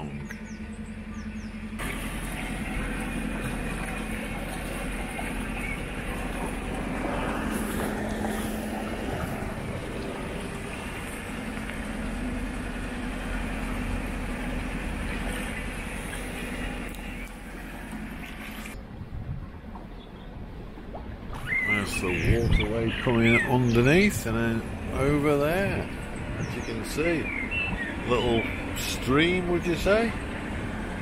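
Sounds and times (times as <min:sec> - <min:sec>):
boat engine running: 0:00.0 - 0:31.0
water washing along hull: 0:00.0 - 0:31.0.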